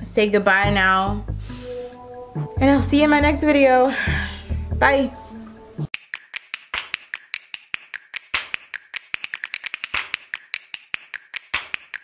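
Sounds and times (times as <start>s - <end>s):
rapid sharp clicks: 5.9s - 12.0s.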